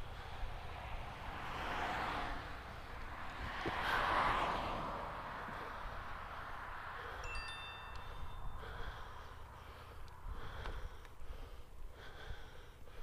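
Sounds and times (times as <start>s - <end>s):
bicycle tyre noise: 0.0s - 4.7s
bicycle bell ringing: 7.2s - 8.7s.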